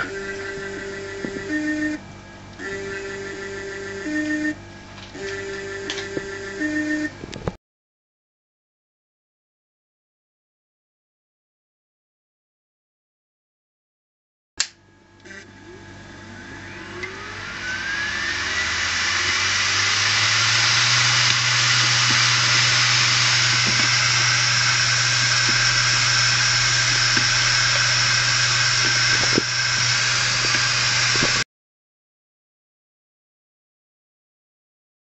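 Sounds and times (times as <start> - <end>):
hard disk drive whirring: 0.0 - 7.4, 15.1 - 31.4.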